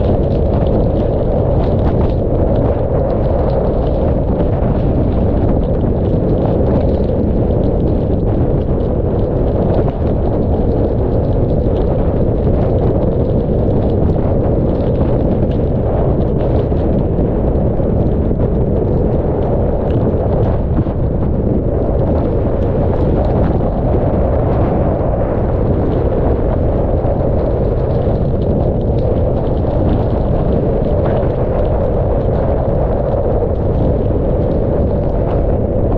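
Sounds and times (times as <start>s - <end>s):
rain spattering on camera: 0.0s - 35.9s
strong wind roaring on microphone: 0.0s - 35.9s.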